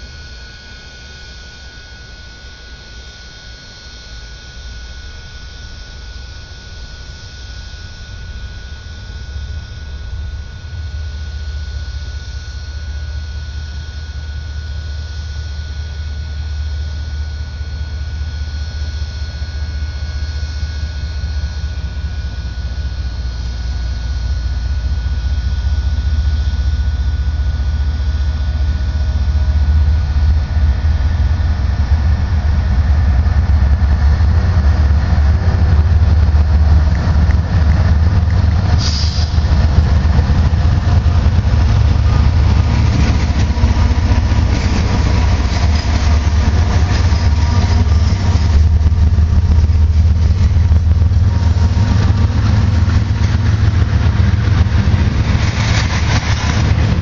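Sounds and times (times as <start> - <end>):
locomotive engine rumble: 0.0 - 57.0.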